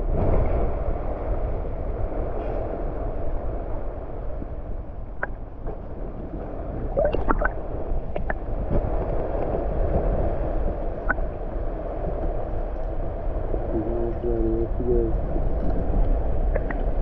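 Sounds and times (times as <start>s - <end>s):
muffled underwater gurgling: 6.6s - 8.8s, 13.6s - 17.0s.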